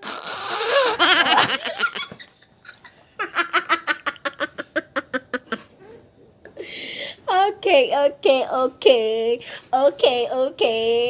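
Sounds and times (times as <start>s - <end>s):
women laughing: 0.7s - 5.7s.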